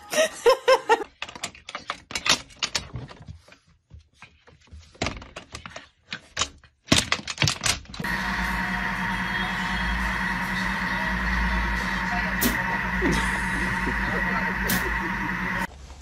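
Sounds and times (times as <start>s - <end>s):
person laughing: 0.0s - 1.1s, 13.0s - 15.7s
steady hum: 8.0s - 15.7s.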